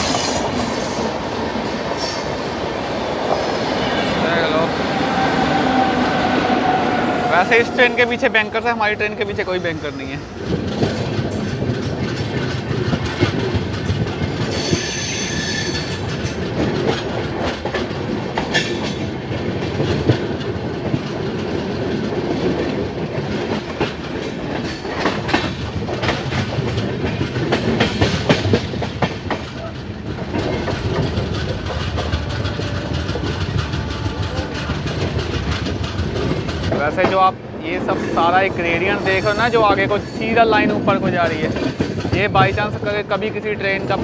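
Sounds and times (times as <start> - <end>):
train rumble: 0.0 - 44.0
high wheel squeal: 4.3 - 10.4, 14.5 - 16.0, 37.9 - 40.5
wheels clacking over rail joints: 6.6 - 44.0.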